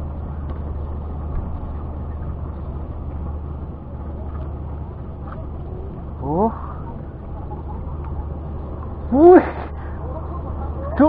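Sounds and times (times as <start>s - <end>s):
boat engine droning: 0.0s - 11.0s
faint clicks: 7.2s - 9.0s.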